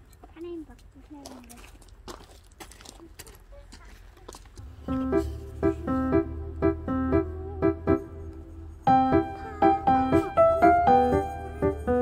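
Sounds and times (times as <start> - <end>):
steady low bass: 4.6 - 9.4
light keyboard melody: 4.6 - 12.0.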